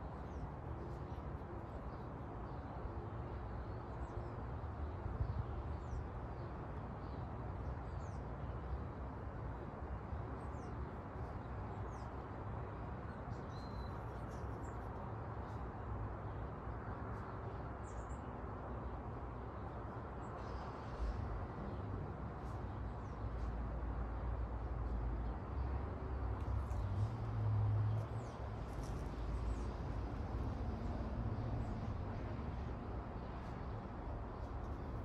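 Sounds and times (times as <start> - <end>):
small birds chirping: 27.9 - 30.1.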